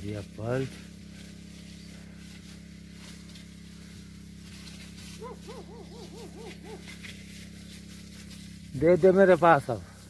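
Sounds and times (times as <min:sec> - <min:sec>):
steady low hum: 0:00.0 - 0:10.0
bird hooting call: 0:05.2 - 0:07.0.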